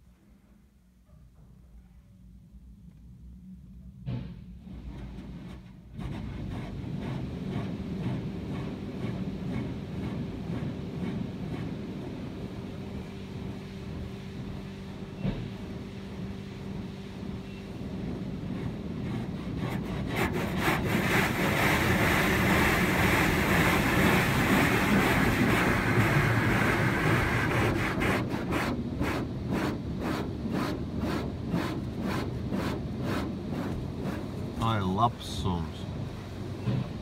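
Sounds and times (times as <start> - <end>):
car wash water spraying: 20.1 - 34.9.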